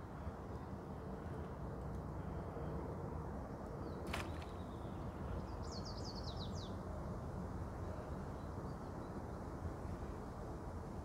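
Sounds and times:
songbird singing: 3.5 - 6.8.

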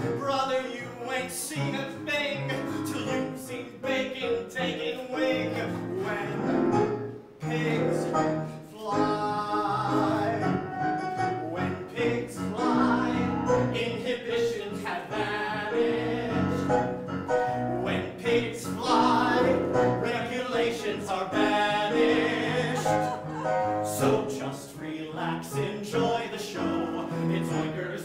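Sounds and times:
men singing: 0.0 - 6.8, 7.4 - 28.0.

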